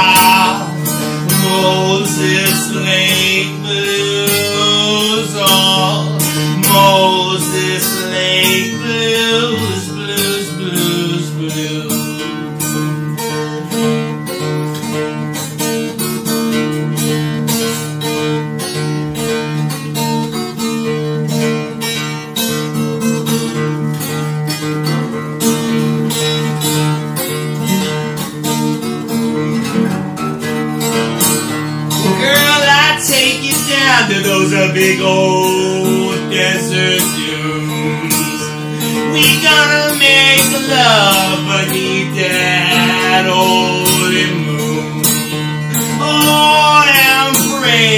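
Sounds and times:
man singing: 0:00.0 - 0:12.9, 0:31.9 - 0:47.9
acoustic guitar strumming chords: 0:00.0 - 0:47.9.

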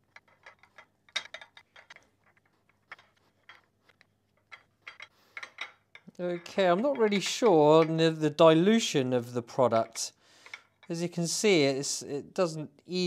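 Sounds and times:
metal blocks clicking on ceramic plate: 0:00.0 - 0:08.1.

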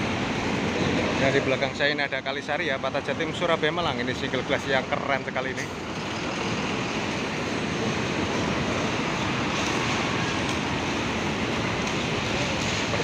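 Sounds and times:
bus diesel engine passing: 0:02.7 - 0:13.0.

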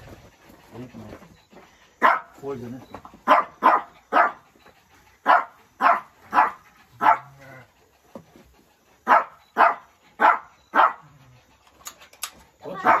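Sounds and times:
dog barking: 0:02.0 - 0:02.4, 0:03.2 - 0:04.4, 0:05.2 - 0:07.5, 0:09.0 - 0:11.1, 0:12.6 - 0:13.0.

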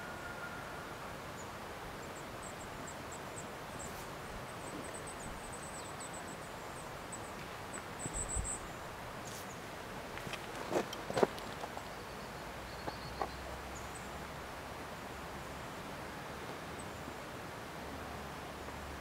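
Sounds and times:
steady forest hiss: 0:00.0 - 0:19.0.

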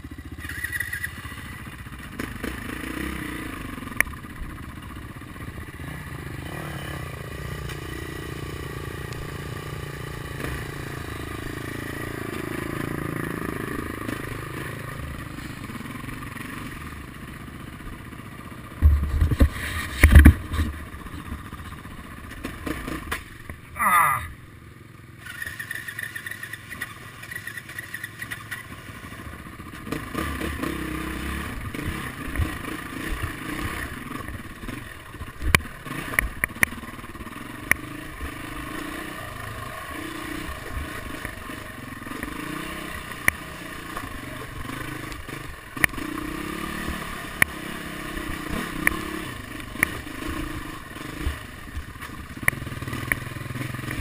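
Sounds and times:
dirt bike engine revving: 0:00.0 - 0:24.4, 0:25.2 - 0:54.0
bike knocking and clattering: 0:18.7 - 0:23.6.

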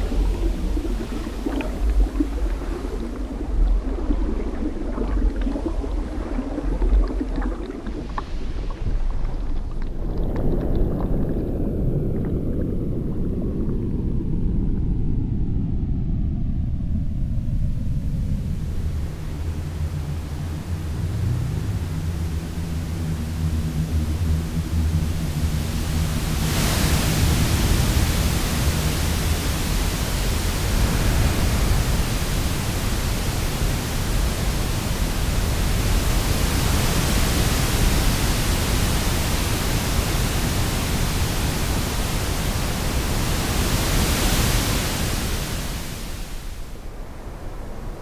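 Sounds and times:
ocean waves breaking: 0:00.0 - 0:14.5, 0:25.4 - 0:48.0.

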